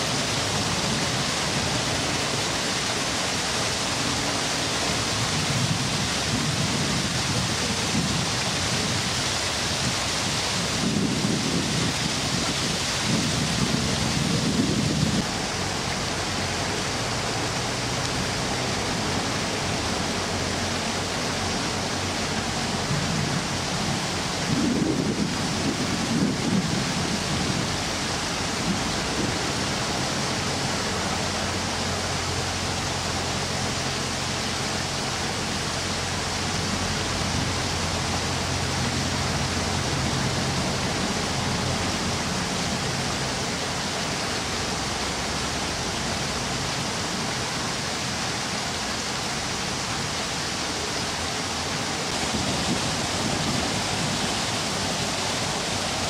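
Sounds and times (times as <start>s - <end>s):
wind rushing: 22.8s - 28.0s.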